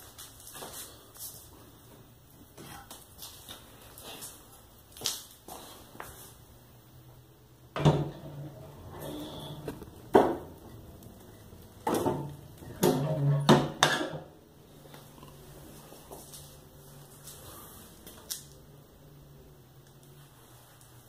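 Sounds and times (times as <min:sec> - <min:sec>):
stove door opening and closing: 0:07.8 - 0:10.8, 0:11.8 - 0:14.3.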